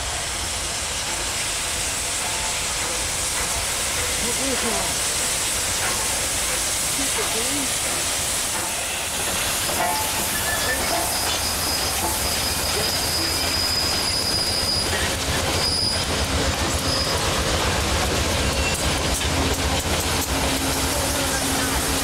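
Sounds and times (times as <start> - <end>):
train wheels rushing on rails: 0.0 - 22.0
high wheel squeal: 8.6 - 17.5, 18.4 - 19.0.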